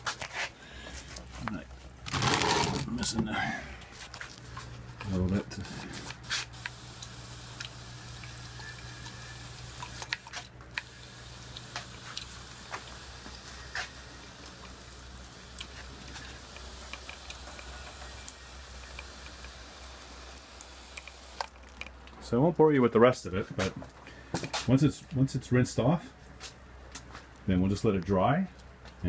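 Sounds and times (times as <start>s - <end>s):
low steady hum: 0.5s - 29.0s
sprayer hissing: 5.1s - 21.5s
water dripping into plastic trays: 11.5s - 22.1s.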